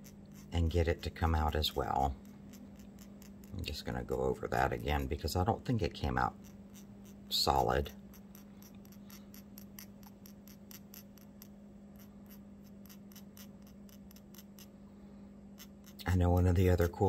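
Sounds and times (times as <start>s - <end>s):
light ticks of powder applicator: 0.0s - 4.2s, 6.2s - 14.8s, 15.6s - 16.1s
steady low hum: 0.0s - 17.0s.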